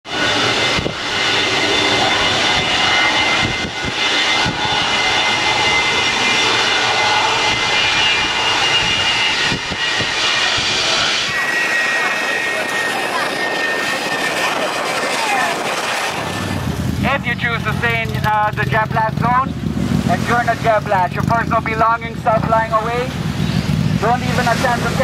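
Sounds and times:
jet engine roar with whine: 0:00.0 - 0:25.0.

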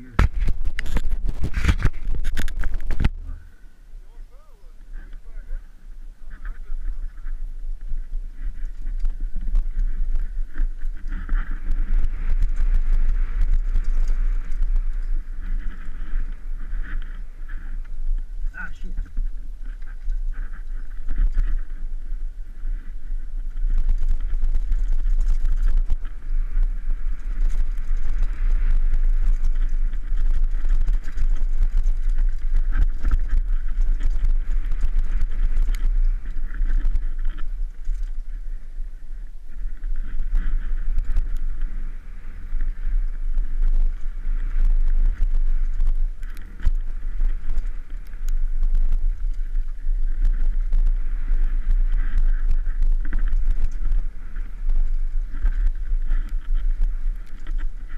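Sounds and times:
wind rumble on microphone: 0:00.0 - 0:57.9
bike clattering over bumps: 0:23.3 - 0:38.2.

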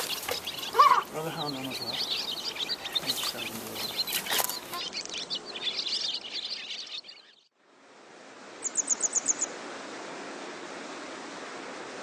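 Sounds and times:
small birds chirping: 0:00.0 - 0:07.5, 0:08.6 - 0:09.5.

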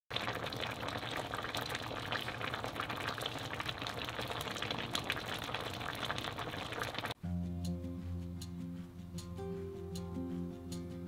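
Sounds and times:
sauce bubbling and popping: 0:00.1 - 0:07.2.

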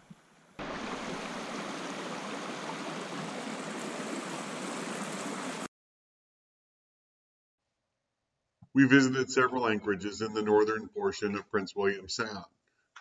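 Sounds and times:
creek flowing over stones: 0:00.0 - 0:05.7.

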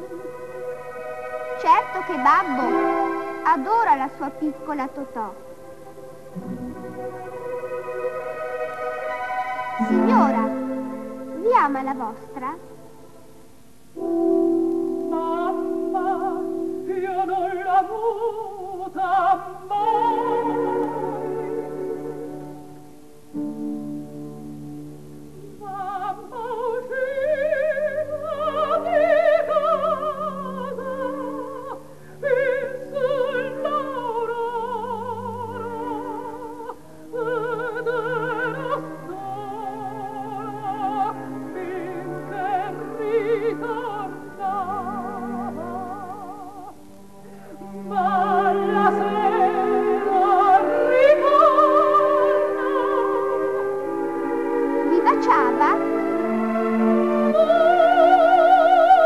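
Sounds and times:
orchestral accompaniment: 0:00.0 - 0:13.4, 0:37.0 - 0:59.0
operatic soprano singing: 0:06.6 - 0:12.8, 0:14.9 - 0:22.6, 0:25.3 - 0:59.0.

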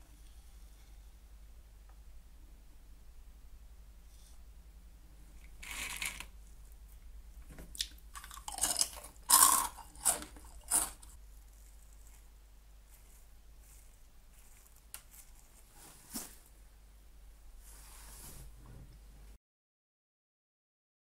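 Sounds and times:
snack sticks crunching when chewed: 0:07.7 - 0:12.3.

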